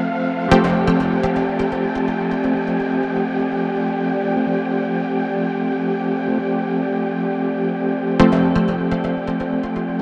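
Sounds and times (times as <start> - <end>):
sustained chords: 0.5 - 4.1, 8.2 - 10.0.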